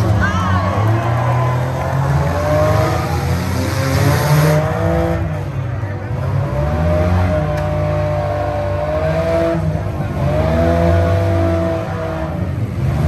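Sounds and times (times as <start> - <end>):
car engines revving: 0.0 - 13.0.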